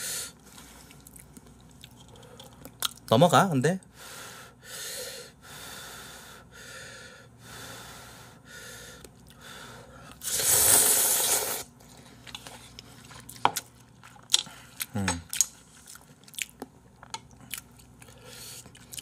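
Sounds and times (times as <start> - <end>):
faint chewing: 0.5 - 3.1, 9.0 - 9.4, 11.8 - 19.0
breathy puffs blowing on noodles: 4.0 - 11.7
loud noodle slurp: 10.2 - 11.7.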